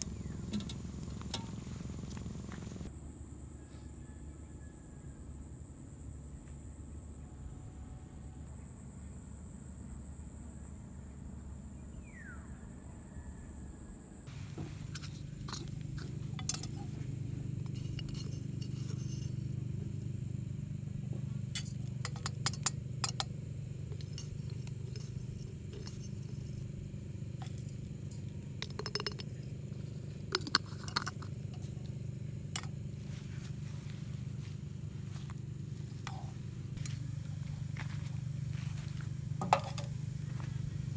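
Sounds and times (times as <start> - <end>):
steady low hum: 0.0 - 3.6, 4.4 - 40.9
insects buzzing: 0.0 - 40.9
utensils clinking on cookware: 14.6 - 19.5, 21.6 - 23.3, 23.9 - 26.6, 27.4 - 31.9.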